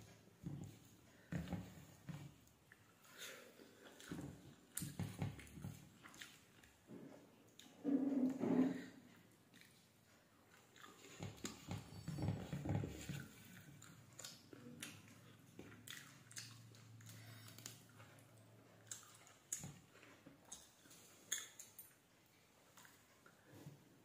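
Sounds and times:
chewing and mouth smacks: 2.4 - 6.8, 9.5 - 12.2, 13.0 - 22.0.

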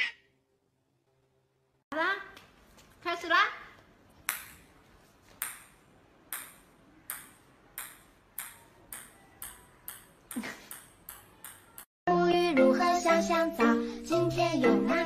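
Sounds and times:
ping-pong ball bouncing on tiles: 5.4 - 11.9.

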